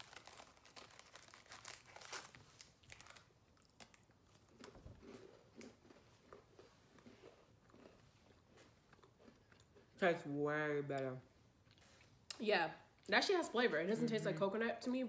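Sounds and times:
biscuit crackling: 0.0 - 9.8
soft chewing: 2.6 - 10.2, 11.0 - 13.1.

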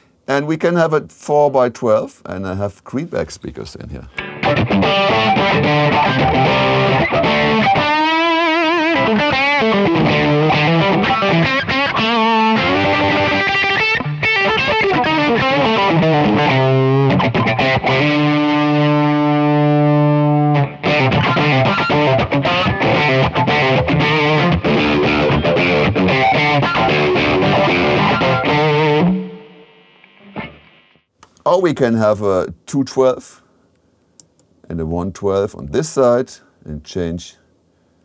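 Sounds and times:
electric guitar playing: 4.1 - 31.1.

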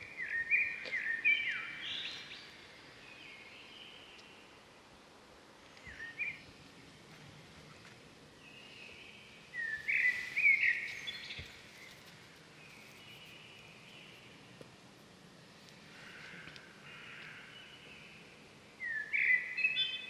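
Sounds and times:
outdoor background noise: 0.0 - 20.0
birds chirping: 8.5 - 14.4.

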